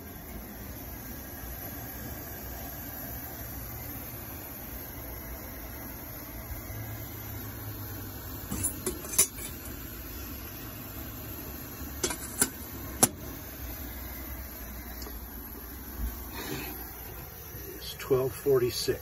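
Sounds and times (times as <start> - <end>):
camp stove burner hissing: 0.0 - 19.0
metal lid clinks: 8.5 - 9.6.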